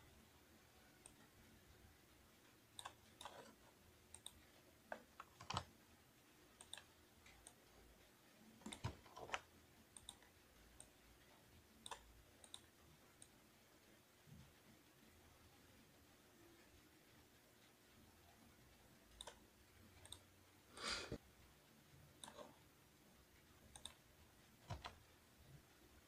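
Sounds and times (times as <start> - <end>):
mouse and keyboard clicks: 2.7 - 5.8, 6.6 - 7.6, 8.6 - 10.9, 11.8 - 13.4, 19.1 - 19.4, 20.0 - 20.3, 22.2 - 22.6, 23.7 - 24.0, 24.6 - 25.0.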